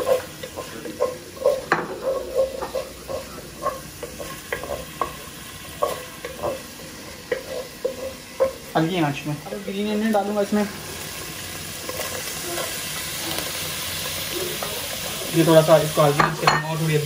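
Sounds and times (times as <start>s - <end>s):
spoon scraping a pot: 0.0s - 5.2s
paste sizzling in oil: 0.0s - 17.0s.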